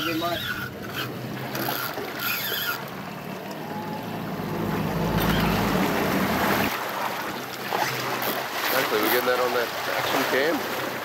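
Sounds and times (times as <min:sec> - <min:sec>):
outboard motor humming: 0:00.0 - 0:11.0
sea water: 0:00.0 - 0:11.0
wind: 0:00.0 - 0:11.0.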